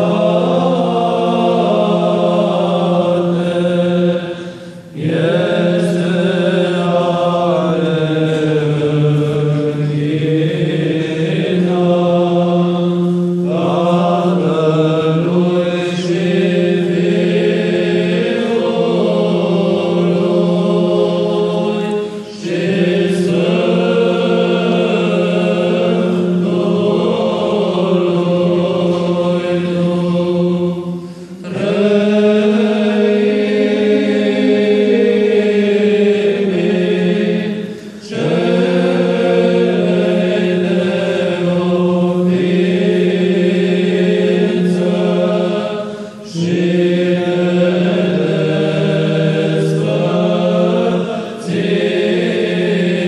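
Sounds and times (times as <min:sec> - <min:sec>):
choir chanting: 0:00.0 - 0:53.0.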